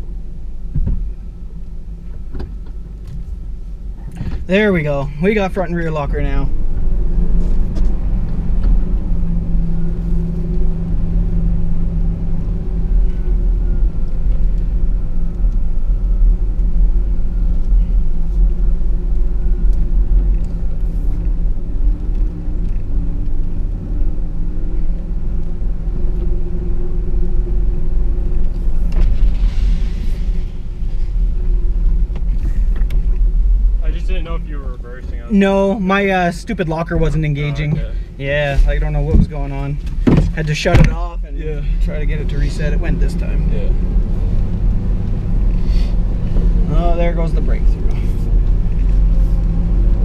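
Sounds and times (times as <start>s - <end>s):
truck engine rumbling: 0.0s - 50.0s
brief hiss: 29.0s - 31.3s.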